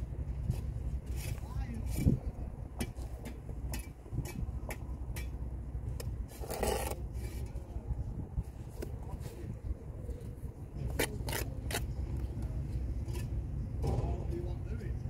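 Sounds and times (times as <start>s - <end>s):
low steady rumble: 0.0s - 15.0s
trowel scraping mortar: 6.3s - 7.5s, 10.8s - 12.0s.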